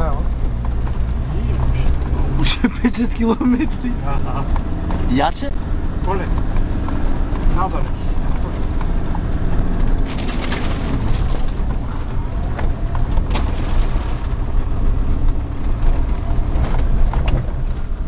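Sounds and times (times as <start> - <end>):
vehicle engine running: 0.0 - 18.0
snow and branches knocking on body: 10.0 - 12.0.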